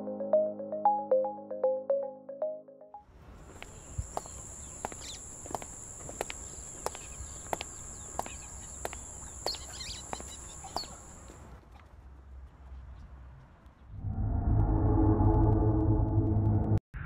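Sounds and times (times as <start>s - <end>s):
high-pitched drone: 0.0s - 2.8s
footsteps on stone paving: 3.4s - 11.6s
short bird chirps: 3.7s - 5.3s, 6.4s - 11.3s.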